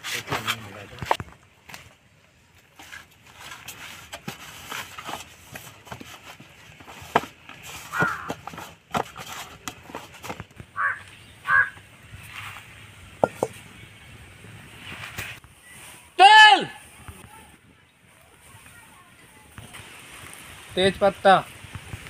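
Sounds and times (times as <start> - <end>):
bird calling: 7.9 - 8.5, 10.7 - 12.0.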